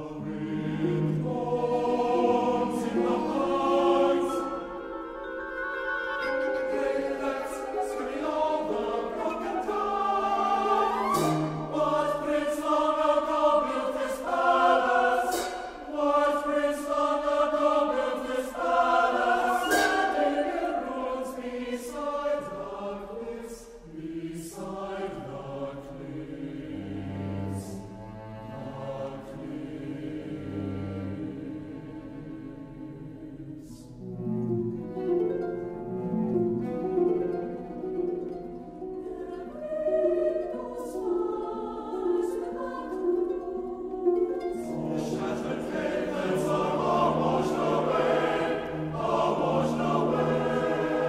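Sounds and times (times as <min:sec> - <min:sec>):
chamber ensemble playing: 0:00.0 - 0:23.4, 0:34.0 - 0:51.0
mixed choir singing: 0:00.0 - 0:35.4, 0:36.0 - 0:51.0.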